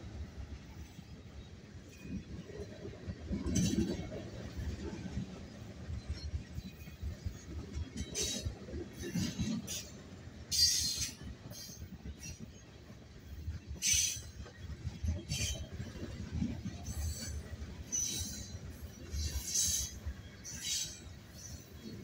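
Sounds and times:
train wheels rumbling on rails: 0.0 - 22.0
metallic wheel squeals: 16.8 - 21.6.

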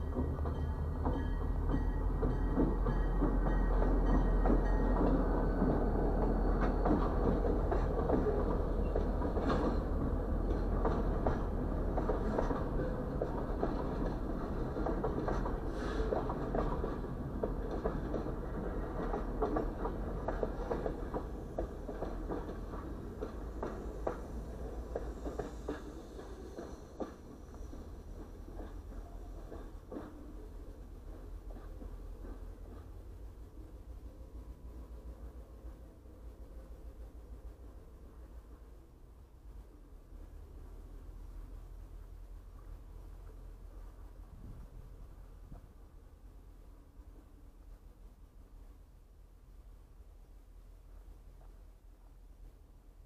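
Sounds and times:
train wheels clattering on rails: 0.0 - 34.1.

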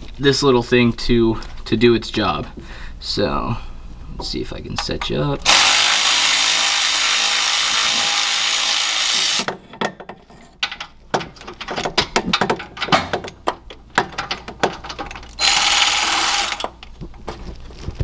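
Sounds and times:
ratchet clicks and knocks: 4.8 - 17.2
power ratchet spinning: 5.4 - 9.5, 15.2 - 16.8.

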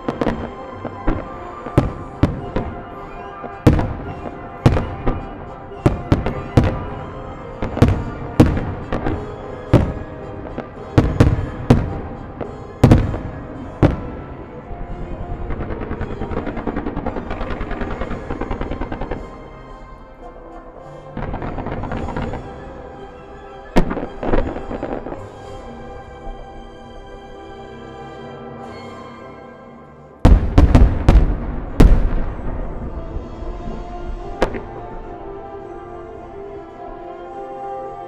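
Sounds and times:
fireworks bursting with sharp bangs: 0.0 - 19.8, 21.1 - 22.9, 23.7 - 25.7, 30.2 - 35.2.

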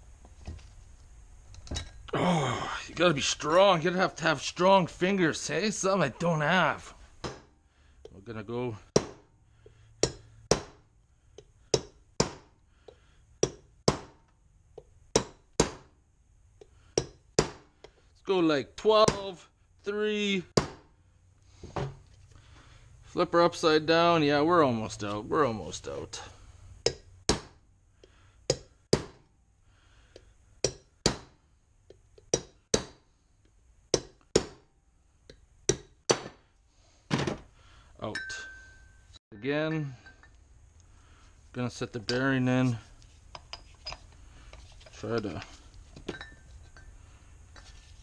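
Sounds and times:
hammer striking steel punch: 8.9 - 9.3, 10.0 - 10.8, 11.7 - 12.5, 13.4 - 14.2, 15.2 - 15.9, 34.0 - 34.6.

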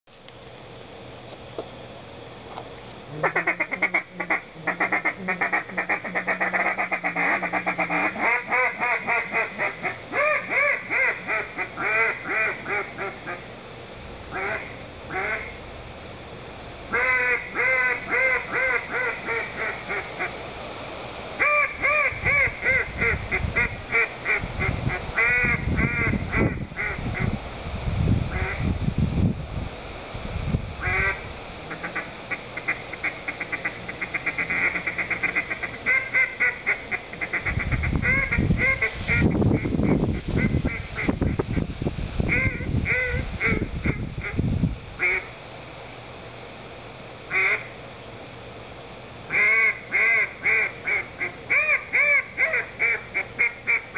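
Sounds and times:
duck call quacks: 3.1 - 13.4, 14.3 - 15.5, 16.9 - 20.3, 21.4 - 27.3, 28.3 - 28.6, 30.8 - 41.6, 42.3 - 44.4, 45.0 - 45.3, 47.3 - 47.7, 49.3 - 53.9.

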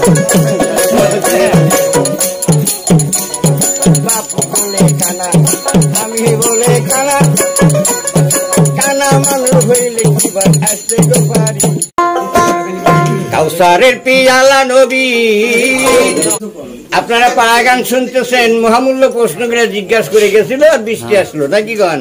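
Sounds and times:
plucked lute melody: 0.0 - 4.2, 12.0 - 13.6
jingling percussion: 0.0 - 13.7, 15.4 - 16.4
steady drum beat: 0.0 - 14.3.

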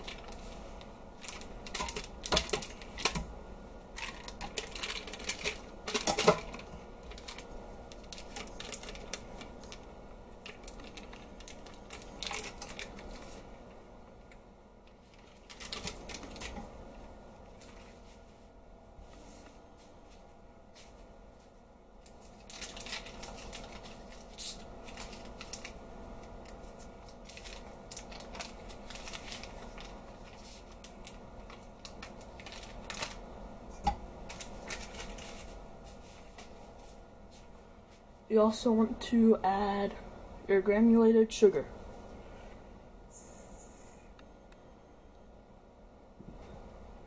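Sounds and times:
paper wrapper crinkling: 0.0 - 3.3, 3.9 - 13.5, 14.9 - 16.7, 17.5 - 18.2, 22.0 - 36.6.

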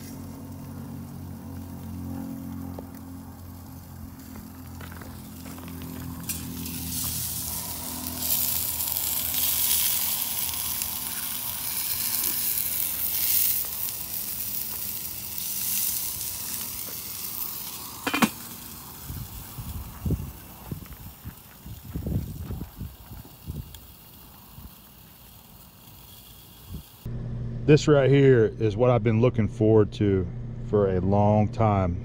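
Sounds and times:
meat sizzling on a grill: 0.0 - 27.1
metal grill lid clanking: 18.0 - 18.5.

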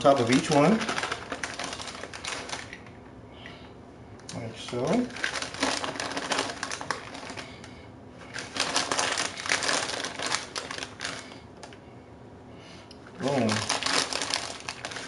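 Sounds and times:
plastic bag crinkling: 0.0 - 3.0, 4.4 - 11.8, 13.2 - 15.0.

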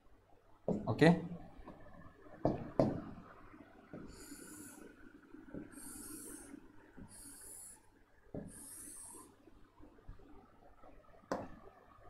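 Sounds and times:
pen scratching on board: 8.4 - 9.2.

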